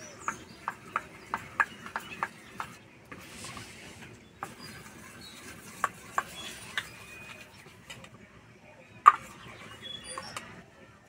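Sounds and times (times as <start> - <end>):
ladle stirring thick batter: 0.0 - 7.9.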